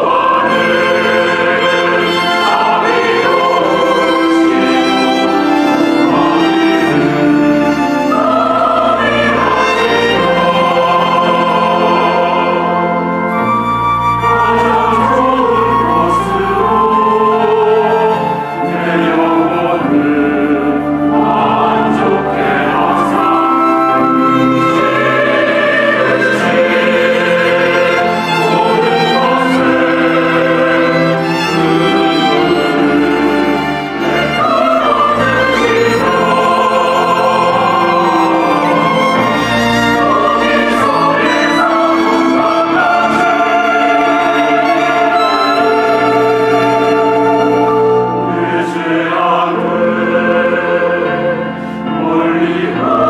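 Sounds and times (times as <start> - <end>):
choir singing: 0.0 - 53.0
orchestral strings: 0.0 - 53.0.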